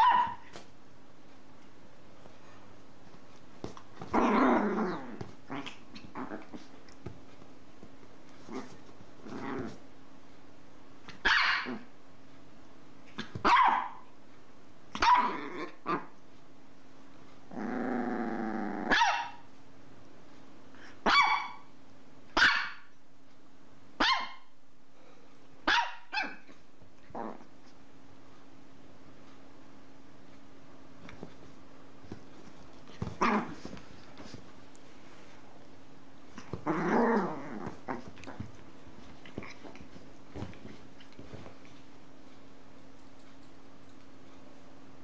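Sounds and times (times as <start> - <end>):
small dog barking: 0.0 - 0.6, 11.2 - 11.9, 13.2 - 14.0, 15.0 - 16.0, 18.8 - 19.5, 21.0 - 21.7, 22.4 - 22.9, 24.0 - 24.5, 25.6 - 26.5
dog growling: 4.1 - 6.7, 8.5 - 9.8, 17.5 - 18.9, 27.1 - 27.5, 33.0 - 33.7, 36.4 - 38.6.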